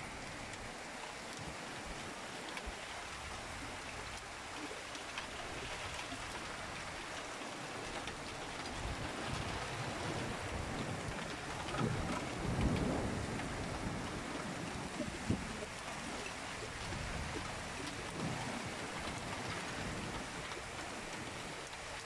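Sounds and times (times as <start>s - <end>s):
heavy rain falling: 0.0s - 22.0s
low rumble of thunder: 8.6s - 21.6s.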